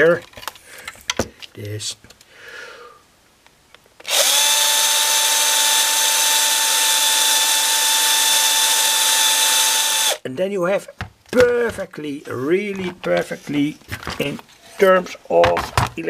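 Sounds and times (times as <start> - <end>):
electric drill motor whine: 4.0 - 10.2.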